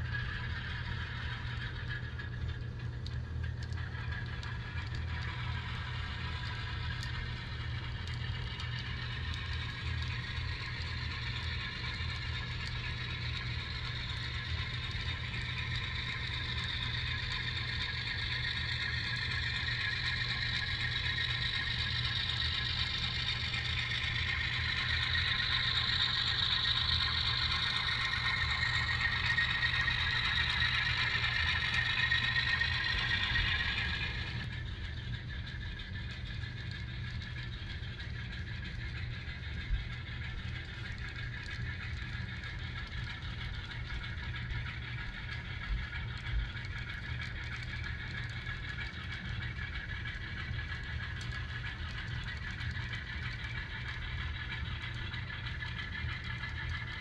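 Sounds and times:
model train cars clicking on track: 0:00.0 - 0:57.0
diesel engine through small speaker: 0:12.2 - 0:34.6.

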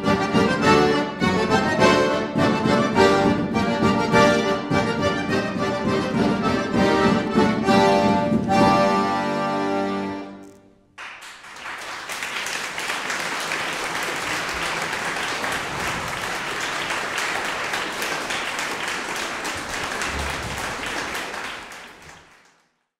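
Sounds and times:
audience applauding: 0:10.4 - 0:22.9.

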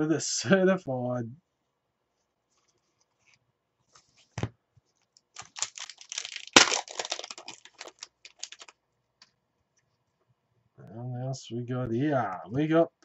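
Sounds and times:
foil wrapper tearing and crinkling: 0:05.4 - 0:08.7.

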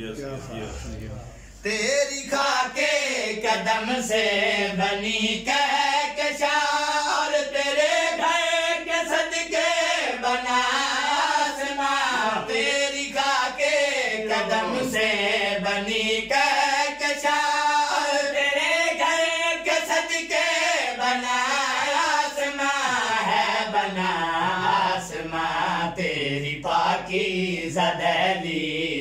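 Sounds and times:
man singing unaccompanied: 0:01.6 - 0:29.0.

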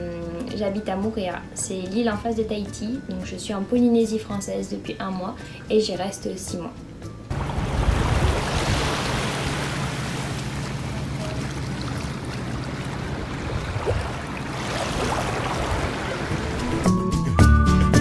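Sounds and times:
small waves lapping: 0:07.3 - 0:16.9
wind: 0:07.3 - 0:17.0.

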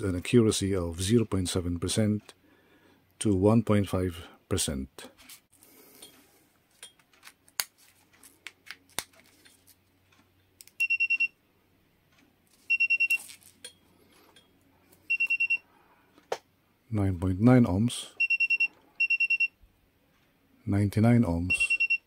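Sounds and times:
multimeter buzzer beeping: 0:10.8 - 0:11.4, 0:12.7 - 0:13.2, 0:15.1 - 0:15.6, 0:18.2 - 0:19.5.

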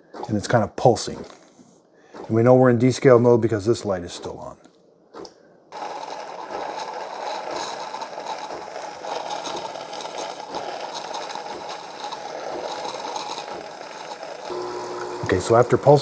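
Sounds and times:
espresso machine pump pulsing: 0:05.8 - 0:16.0.

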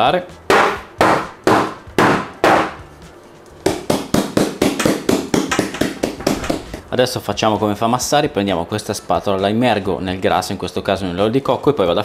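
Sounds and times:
metal pan knocking on countertop: 0:03.7 - 0:06.8.

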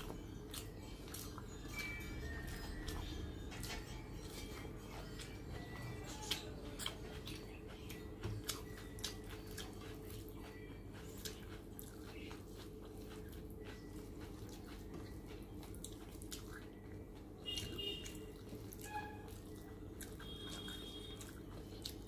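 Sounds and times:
chewing: 0:00.0 - 0:22.0
steady low hum: 0:00.0 - 0:22.0
fingers squishing rice and curry: 0:06.0 - 0:22.0.

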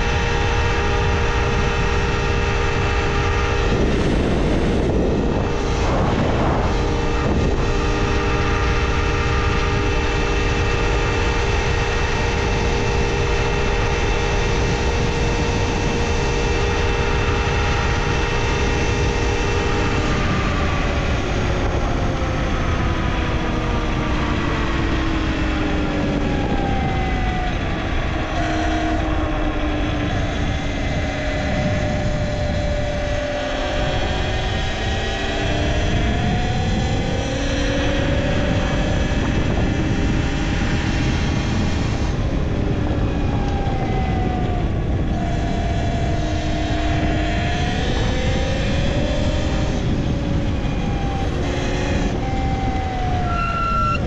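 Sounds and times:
electric motor whining: 0:00.0 - 0:54.0
wind rushing: 0:01.0 - 0:13.6.

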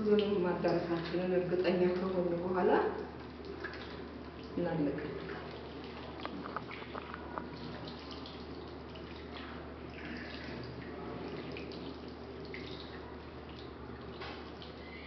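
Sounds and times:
hands rinsing under water: 0:05.2 - 0:13.0
tap water splashing into basin: 0:10.2 - 0:14.8.

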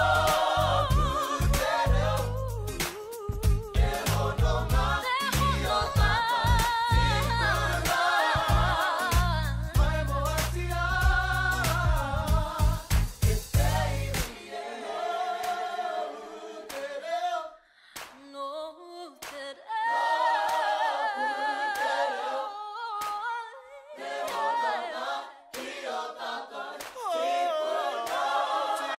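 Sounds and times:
voices singing in harmony: 0:00.0 - 0:17.6, 0:19.4 - 0:29.0.

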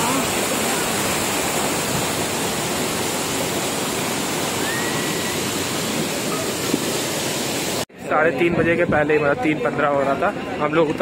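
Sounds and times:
fast-flowing river water rushing: 0:00.0 - 0:07.8.

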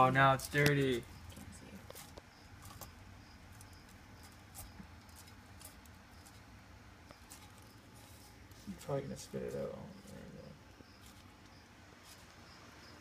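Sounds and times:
lizard crunching food: 0:00.3 - 0:13.0.

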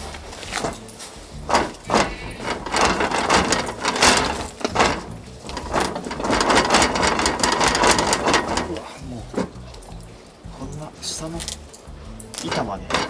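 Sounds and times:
wooden window frame rattling: 0:00.4 - 0:10.0, 0:12.4 - 0:13.0.

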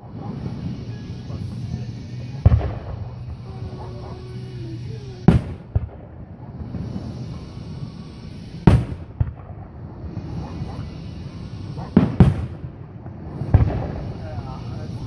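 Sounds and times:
firework shells booming: 0:00.0 - 0:15.0
small firework pops: 0:02.4 - 0:03.5, 0:05.3 - 0:07.0, 0:08.6 - 0:10.2, 0:11.9 - 0:14.2.

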